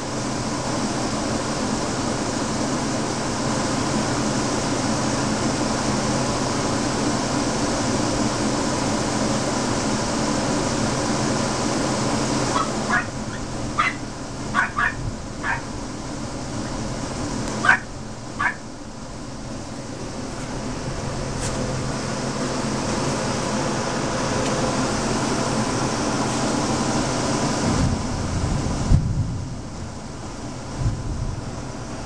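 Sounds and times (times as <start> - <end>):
dog yipping: 12.5 - 14.0, 14.6 - 15.7, 17.6 - 18.6.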